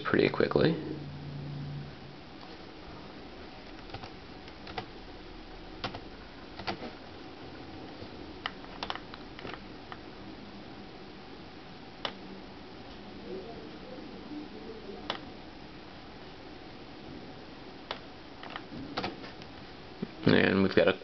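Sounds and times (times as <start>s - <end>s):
keyboard key clicks: 8.4s - 10.0s.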